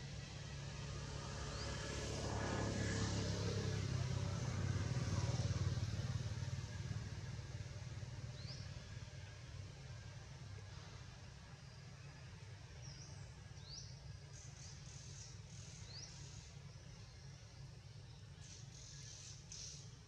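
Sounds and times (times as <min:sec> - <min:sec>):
vehicle engine passing by: 0:00.0 - 0:11.1
bird chirp: 0:08.3 - 0:08.8, 0:11.6 - 0:20.0.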